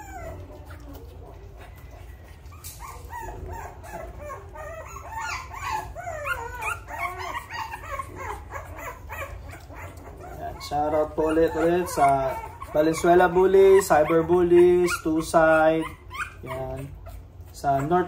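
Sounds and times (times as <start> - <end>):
puppies whimpering and yelping: 0.0 - 18.0.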